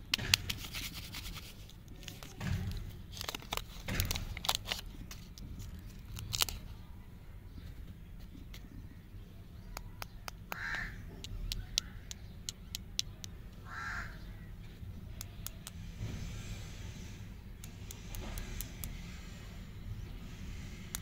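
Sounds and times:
lollipop sticks clicking: 9.8 - 13.4.

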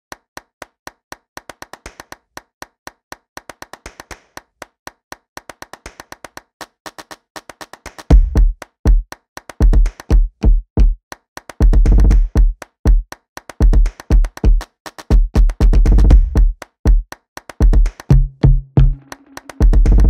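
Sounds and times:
crisp clap-like clicks: 0.1 - 10.2, 11.1 - 11.6, 12.6 - 15.2, 18.9 - 19.8
deep bass kick drums: 8.1 - 8.5, 15.2 - 16.5, 18.1 - 19.0.

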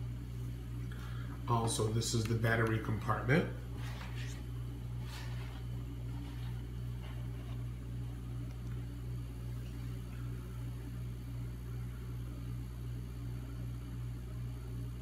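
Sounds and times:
steady low hum: 0.0 - 15.0
faint brushing: 3.7 - 8.3.

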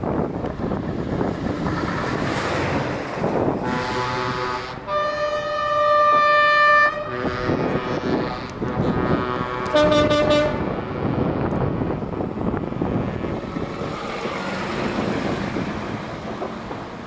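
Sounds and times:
truck diesel engines pulling away: 0.0 - 17.0
multi-tone air horn: 3.6 - 11.4.

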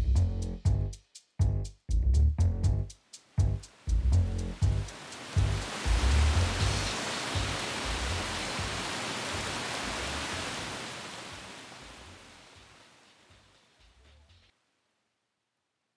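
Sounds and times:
falling rain hiss: 2.9 - 14.6.

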